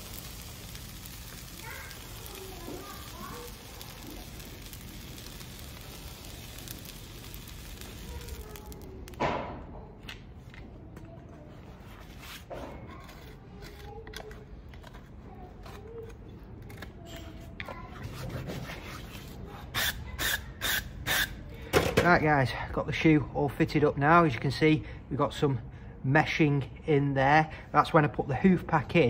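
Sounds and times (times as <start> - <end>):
hot horseshoe sizzling on hoof: 0.0 - 9.3, 19.7 - 21.4.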